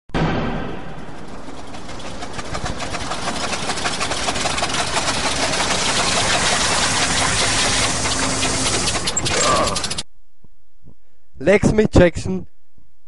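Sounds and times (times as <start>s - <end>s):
car engine running roughly: 1.0s - 10.0s.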